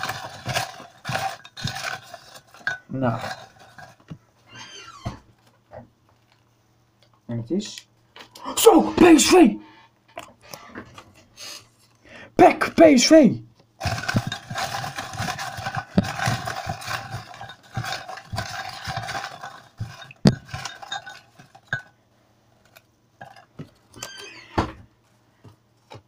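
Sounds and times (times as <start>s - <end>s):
lots rattling in a container: 0.0s - 4.1s, 13.8s - 22.0s, 22.6s - 24.3s.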